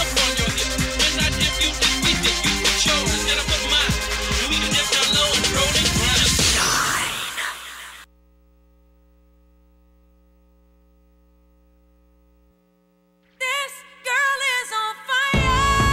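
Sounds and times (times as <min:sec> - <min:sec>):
music: 0:00.0 - 0:07.7, 0:15.2 - 0:15.9
faint electrical hum: 0:08.0 - 0:14.8.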